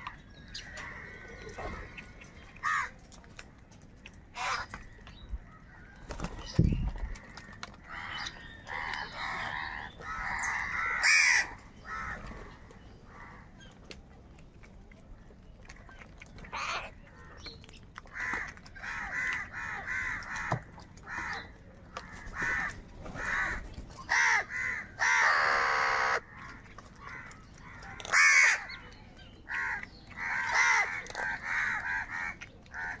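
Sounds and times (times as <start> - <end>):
crows cawing: 2.6 - 3.0, 4.4 - 4.7, 7.0 - 12.2, 18.1 - 26.2, 28.1 - 28.7, 29.5 - 33.0.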